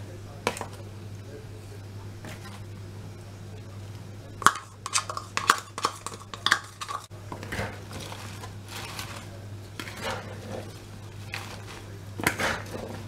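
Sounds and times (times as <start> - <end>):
lettuce leaves rustling: 7.9 - 9.4, 10.5 - 11.9.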